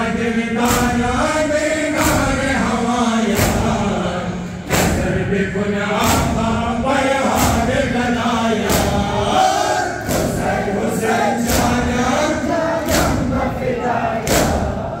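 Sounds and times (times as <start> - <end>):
men chanting in unison: 0.0 - 15.0
collective chest beating: 10.0 - 10.8.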